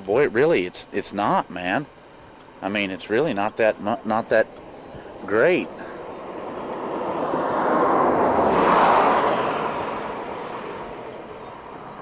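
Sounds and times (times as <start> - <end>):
vehicle passing close by: 4.2 - 12.0.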